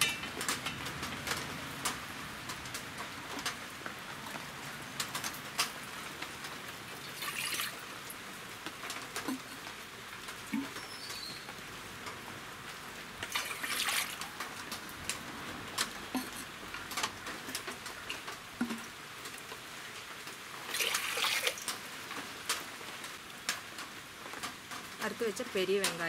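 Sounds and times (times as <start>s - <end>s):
water splashing as poured: 6.9s - 7.9s, 13.2s - 14.5s, 20.6s - 21.7s
vessels clinking: 16.1s - 16.5s.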